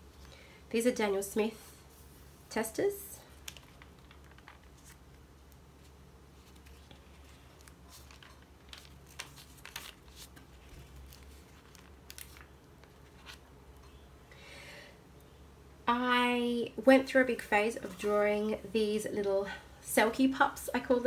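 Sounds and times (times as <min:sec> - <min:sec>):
low steady hum: 0:00.0 - 0:21.0
paper pages rustling: 0:03.3 - 0:13.5.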